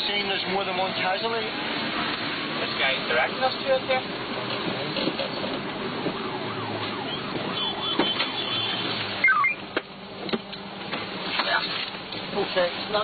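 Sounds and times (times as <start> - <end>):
vehicle running noise: 0.0 - 13.0
ambulance siren: 5.7 - 9.6.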